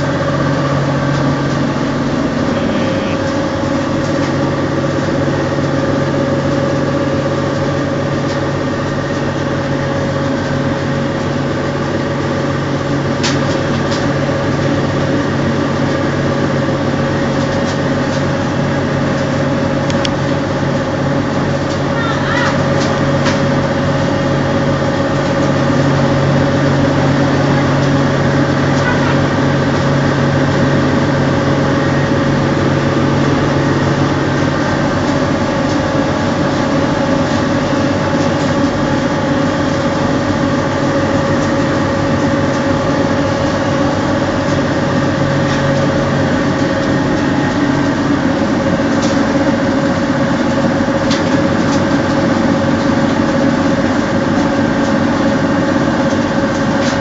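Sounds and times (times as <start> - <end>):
lower hum: 0.0 - 6.7
constant machine whine: 0.0 - 57.0
machine mechanical hum: 0.0 - 57.0.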